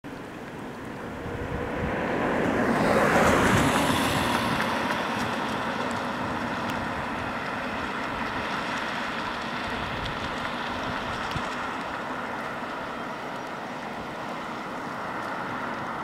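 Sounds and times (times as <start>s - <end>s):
vehicle passing by: 1.0s - 16.0s.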